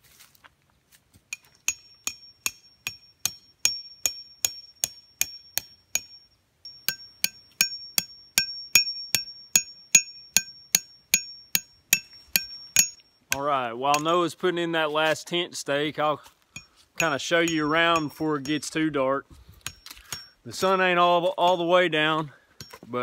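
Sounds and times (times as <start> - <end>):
hammer striking metal tent stake: 1.3 - 14.2, 16.6 - 18.9, 19.6 - 20.9, 22.6 - 22.9.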